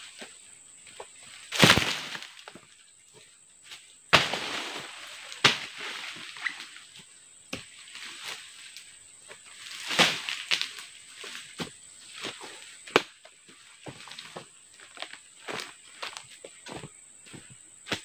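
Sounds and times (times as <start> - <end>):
crackling rustle of fronds: 0.0 - 17.4
sharp strikes on palm fronds: 1.4 - 2.6, 3.7 - 6.8, 9.6 - 11.7, 12.8 - 13.2.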